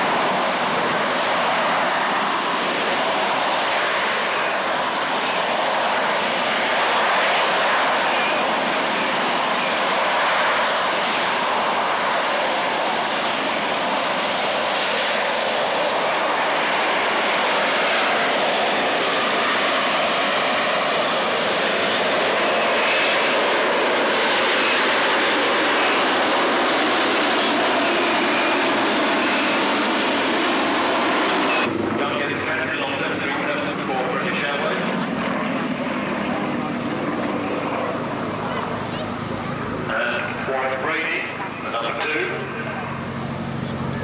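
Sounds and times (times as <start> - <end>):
jet hovering: 0.0 - 44.0.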